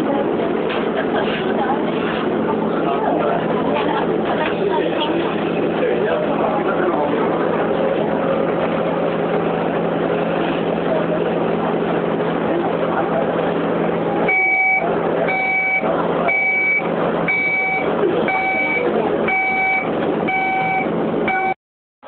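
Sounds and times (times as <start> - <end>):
passengers chatting: 0.0 - 21.6
train carriage hum: 0.0 - 21.6
train door warning beeps: 14.3 - 21.6.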